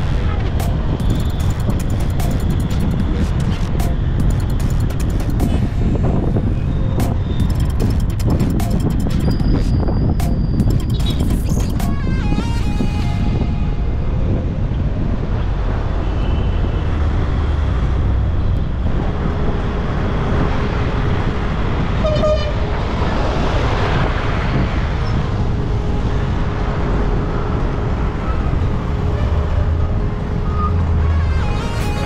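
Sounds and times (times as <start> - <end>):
road and engine rumble: 0.0 - 32.0
vehicle horn toot: 22.0 - 22.6, 30.5 - 32.0.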